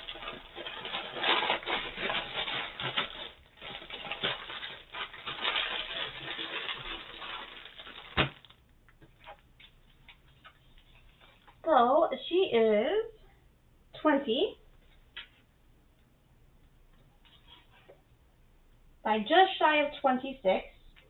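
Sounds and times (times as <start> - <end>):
canvas crinkling and rustling: 0.0 - 11.6.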